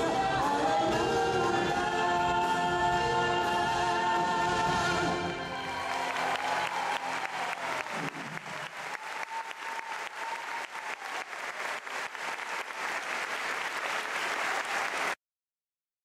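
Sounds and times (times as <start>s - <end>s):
orchestra and choir: 0.0s - 8.7s
audience applauding: 5.5s - 15.2s.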